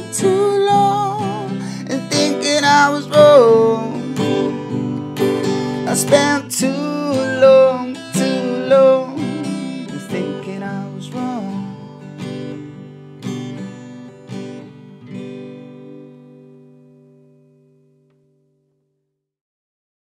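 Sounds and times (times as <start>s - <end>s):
person singing: 0.0s - 12.0s
acoustic guitar strumming: 0.0s - 18.4s.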